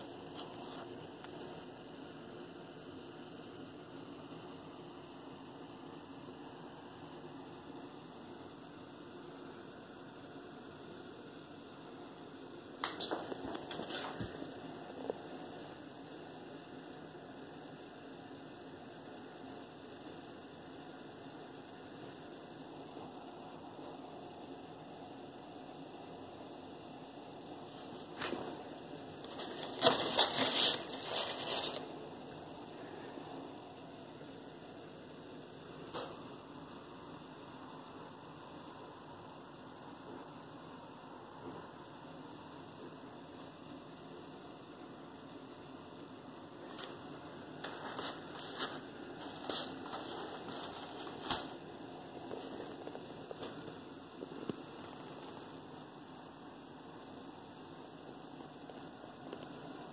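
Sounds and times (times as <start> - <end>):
faint steady hum: 0.0 - 59.9
steady low hiss: 0.0 - 59.9
close scraping and rustling: 29.2 - 31.9, 47.6 - 51.5.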